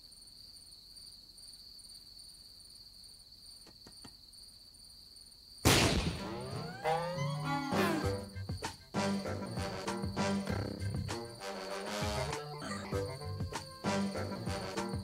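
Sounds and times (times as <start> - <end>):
insects trilling: 0.0 - 15.0
music cue with falling tones: 6.3 - 8.4, 12.2 - 14.2.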